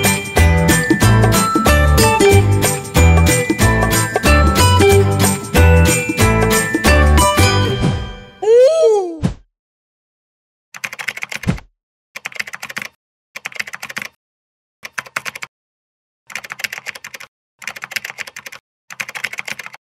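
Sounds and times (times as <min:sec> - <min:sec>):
rapid keyboard key clicks: 0:10.8 - 0:11.6, 0:12.2 - 0:14.2, 0:14.8 - 0:15.5, 0:16.3 - 0:19.8.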